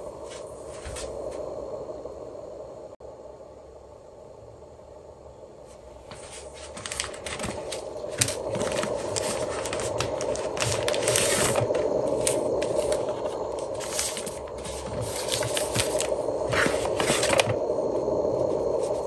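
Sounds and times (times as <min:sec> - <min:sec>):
faint room hum: 0:00.0 - 0:19.0
cardboard scraping and rustling: 0:06.1 - 0:17.6.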